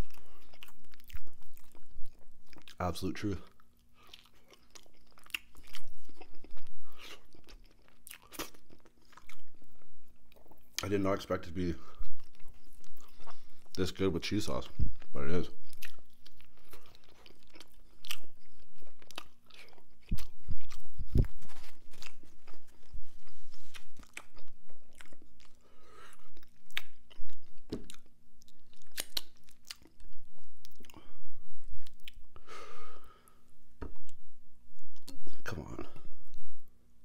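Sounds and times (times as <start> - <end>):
close chewing with mouth smacks: 0.0 - 2.8, 3.5 - 10.9, 11.9 - 13.9, 14.6 - 31.0, 31.8 - 32.3.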